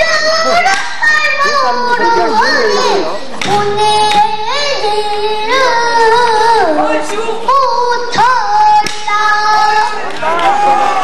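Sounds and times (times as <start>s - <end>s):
girl singing held notes: 1.4s - 7.3s.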